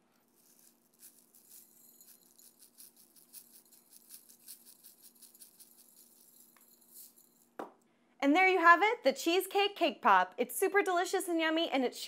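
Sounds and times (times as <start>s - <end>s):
sprinkles rattling in plastic shaker: 0.2s - 7.6s.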